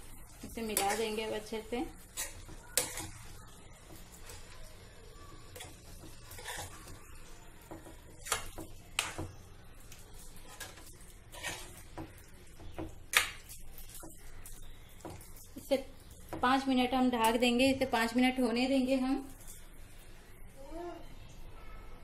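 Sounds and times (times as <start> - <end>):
spoon scraping cooking pan: 0.1 - 4.6, 5.3 - 17.4.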